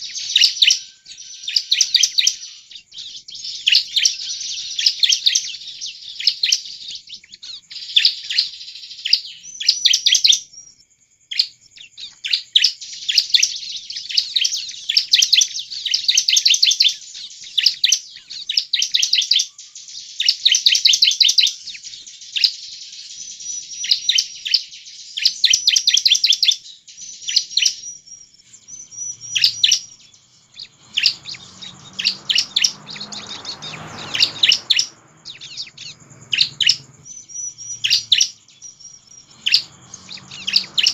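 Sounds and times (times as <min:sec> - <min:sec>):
bird singing rapid sharp chirps: 0:00.0 - 0:40.9
soft rushing noise: 0:30.2 - 0:37.1.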